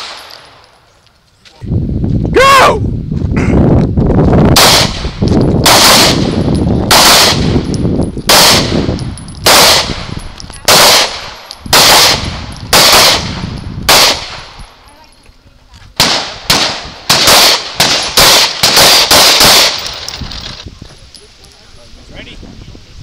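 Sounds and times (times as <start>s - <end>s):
pistol shots: 4.6s - 14.6s, 16.0s - 20.0s.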